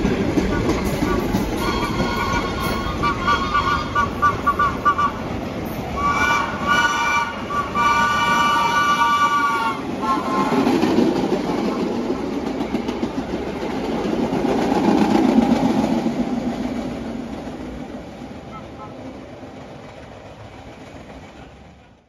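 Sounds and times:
train clattering past on rails: 0.0s - 22.0s
train horn blasts: 0.5s - 5.3s, 5.9s - 10.8s, 18.5s - 19.0s.

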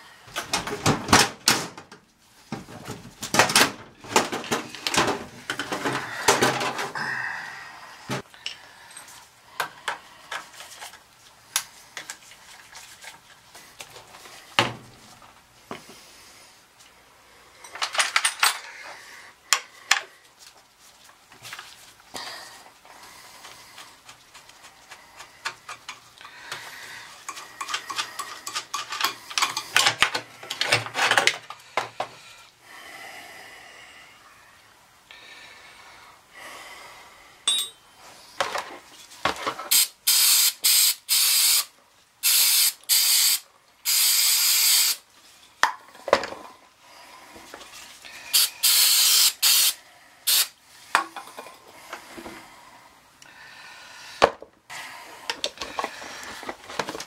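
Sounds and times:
metal parts clicking and rattling: 17.6s - 18.7s, 27.2s - 31.5s
aerosol can hissing bursts: 39.7s - 45.0s, 48.3s - 50.5s.

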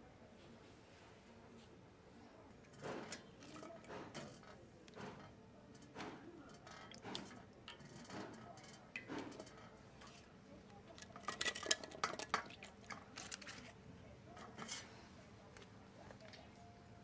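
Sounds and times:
chillies dropped into metal pot: 2.7s - 14.9s.

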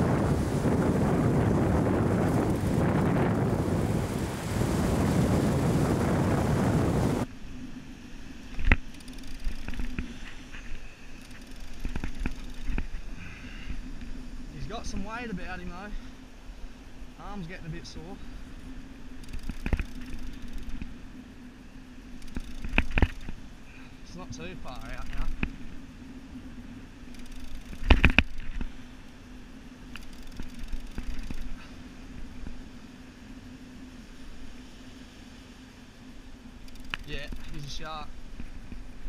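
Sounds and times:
wind buffeting microphone: 0.0s - 7.3s
reel low mechanical hum: 0.0s - 39.0s
fishing rod and reel clicks: 8.5s - 13.1s, 19.1s - 21.0s, 22.1s - 23.4s, 24.7s - 25.6s, 27.0s - 29.2s, 29.8s - 31.6s, 36.6s - 37.8s.

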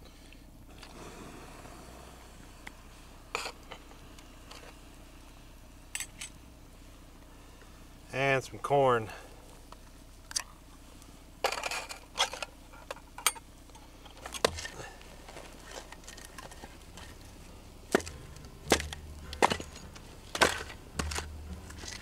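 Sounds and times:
hatchet chopping wood: 17.9s - 21.4s.

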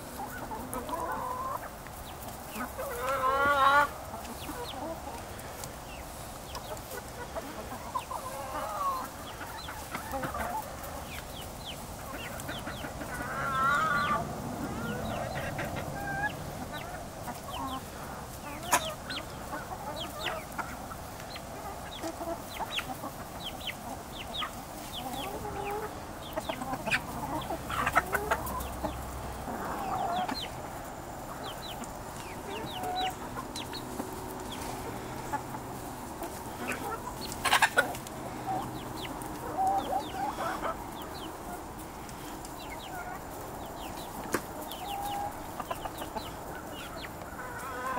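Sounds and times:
hens clucking: 0.0s - 47.9s.

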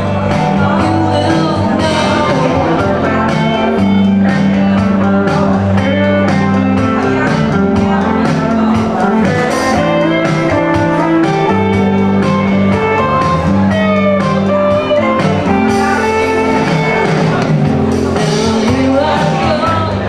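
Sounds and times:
electric guitar playing: 0.0s - 20.0s
woman singing: 0.3s - 3.9s, 18.2s - 20.0s.

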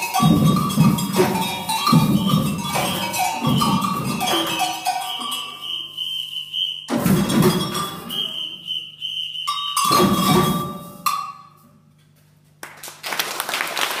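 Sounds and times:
steady clatter: 0.0s - 5.3s
drum hits ringing out: 0.0s - 5.6s, 6.8s - 8.6s, 9.5s - 11.3s
samba whistle blasts: 1.2s - 10.9s.

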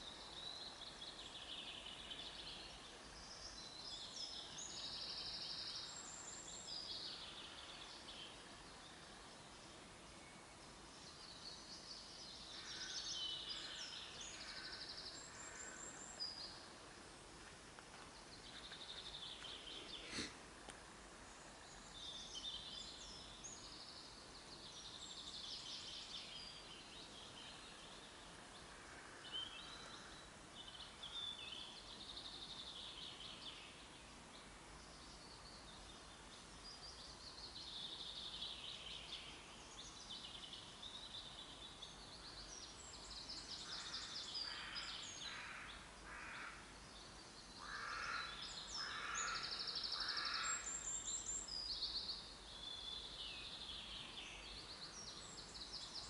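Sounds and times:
songbirds singing: 0.0s - 56.0s.

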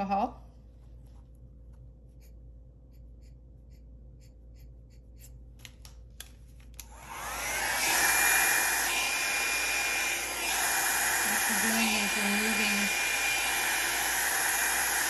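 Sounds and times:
hair dryer whining and blowing: 6.7s - 15.0s.

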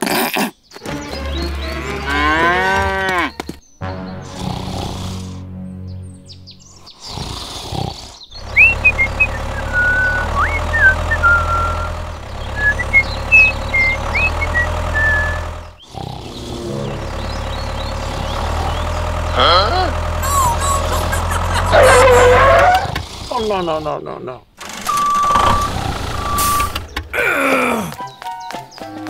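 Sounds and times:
bird chirps and whistles: 8.3s - 15.4s, 20.2s - 21.3s
low engine drone: 8.3s - 22.8s, 24.6s - 27.3s
cartoon sliding-pitch effect: 20.2s - 22.8s.

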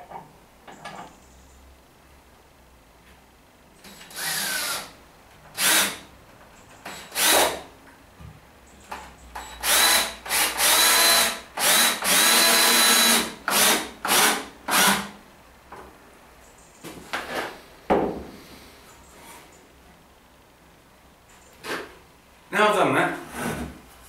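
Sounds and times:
cordless drill driving screws: 3.8s - 6.0s, 6.8s - 7.6s, 9.4s - 15.1s.

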